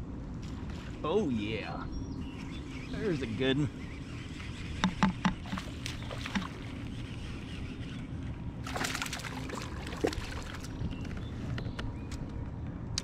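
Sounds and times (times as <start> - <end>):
fish splashing at the surface: 5.4 - 6.7, 8.6 - 10.8.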